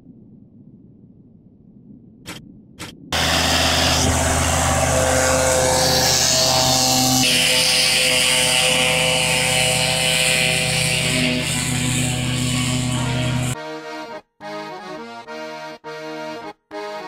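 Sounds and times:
faint low rumble: 0.0 - 7.7
mower cutting hiss: 3.2 - 13.6
tractor diesel engine drone: 3.2 - 13.6.

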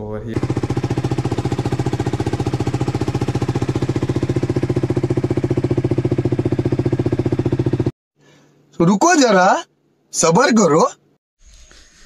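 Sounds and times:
single-cylinder engine idling: 0.4 - 7.9.

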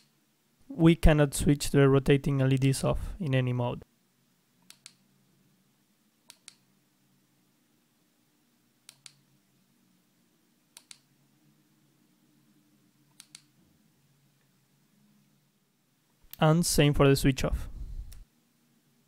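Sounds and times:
faint low hum: 0.0 - 19.0.

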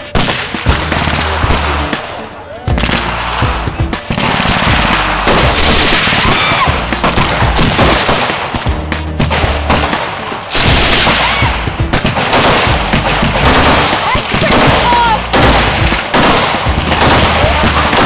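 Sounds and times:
machine gun automatic fire: 4.1 - 8.3, 9.8 - 11.4, 12.0 - 18.0.

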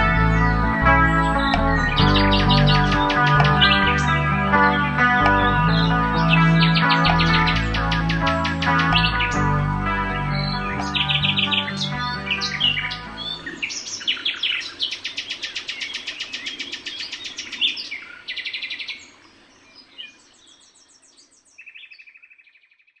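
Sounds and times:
guitar notes: 0.0 - 13.6
songbirds trilling: 0.0 - 22.8.

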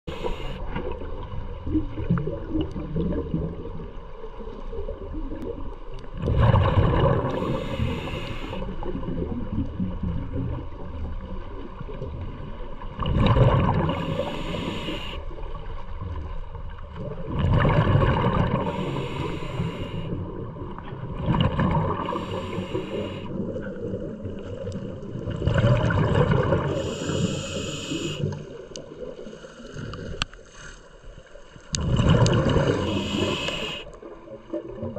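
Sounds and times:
low underwater rumble: 0.0 - 8.0, 8.6 - 30.2
bubbling exhalation with hiss: 6.2 - 9.3, 13.1 - 15.2, 21.2 - 23.5, 25.4 - 28.4, 31.8 - 34.0.

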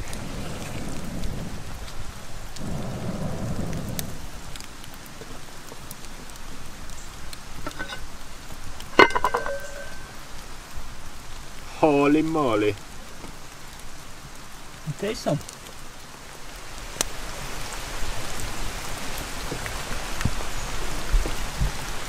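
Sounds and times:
steady rain: 0.0 - 22.0
metal lid clanking: 7.6 - 8.1, 9.0 - 10.2.

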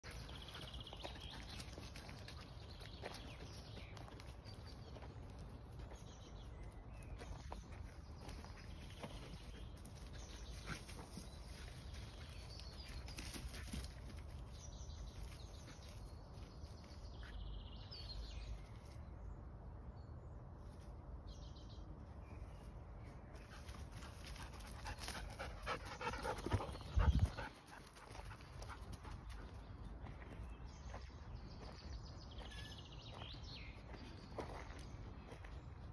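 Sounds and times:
distant birdsong: 21.3 - 35.9.

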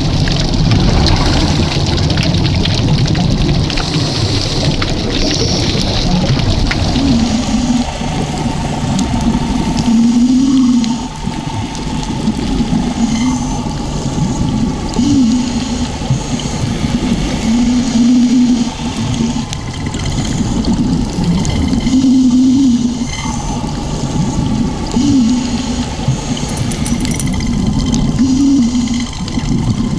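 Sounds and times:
bubbling water: 0.0 - 29.9
diver breathing through regulator: 12.9 - 19.5, 28.1 - 29.2.

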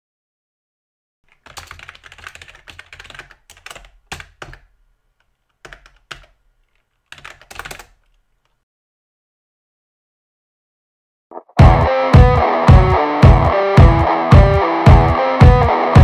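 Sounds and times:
computer keyboard typing: 1.3 - 8.6.

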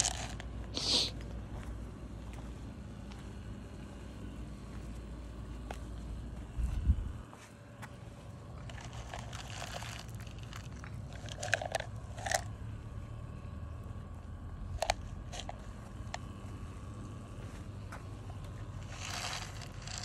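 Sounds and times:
animal crunching dry food: 0.0 - 1.3, 8.3 - 12.6, 14.6 - 16.5, 18.0 - 20.0.

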